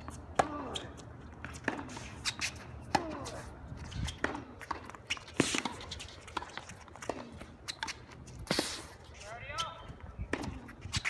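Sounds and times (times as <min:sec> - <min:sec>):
tennis ball struck and bouncing: 0:00.0 - 0:00.8, 0:01.4 - 0:03.4, 0:04.0 - 0:08.1
footsteps scuffing on court: 0:00.0 - 0:11.0.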